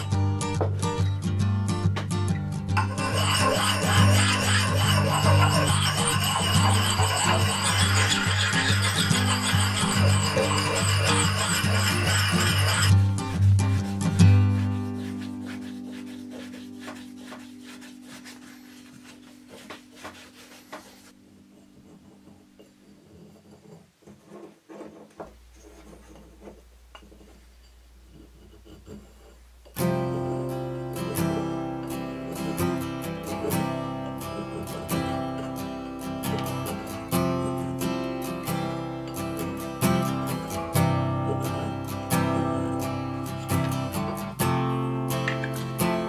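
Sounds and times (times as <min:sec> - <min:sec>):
background music: 0:00.0 - 0:18.3
strummed acoustic guitar music: 0:00.0 - 0:20.0, 0:29.7 - 0:46.0
sanding block rubbing steel: 0:02.8 - 0:21.2, 0:31.0 - 0:38.5.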